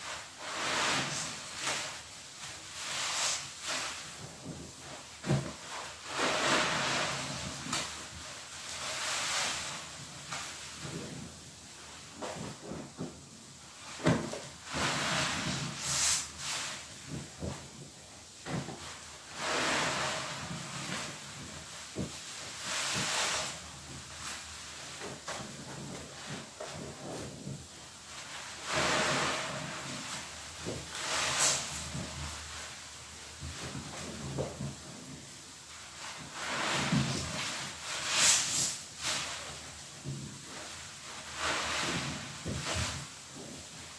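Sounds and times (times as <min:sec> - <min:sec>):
soapy sponge squelching: 0:00.4 - 0:11.3, 0:28.6 - 0:32.9.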